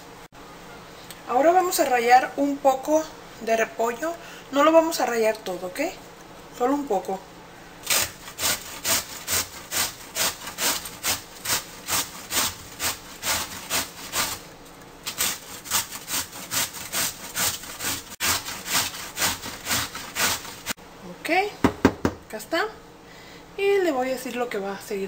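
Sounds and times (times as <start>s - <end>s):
cabbage grated on metal grater: 7.8s - 14.4s, 15.0s - 20.8s.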